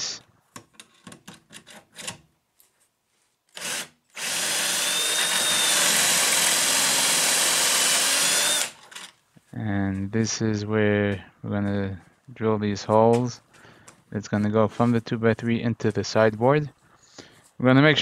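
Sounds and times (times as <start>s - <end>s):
power drill boring into wood: 3.5s - 9.1s.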